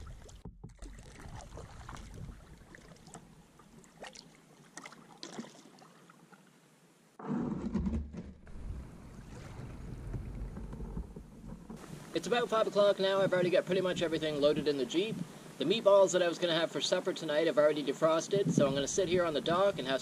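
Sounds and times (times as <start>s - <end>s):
wind rumble on microphone: 0.0s - 2.7s, 8.2s - 12.2s, 18.3s - 20.0s
small splashes: 0.0s - 6.5s, 8.6s - 10.7s
water lapping and dripping: 0.0s - 6.6s, 8.5s - 14.2s.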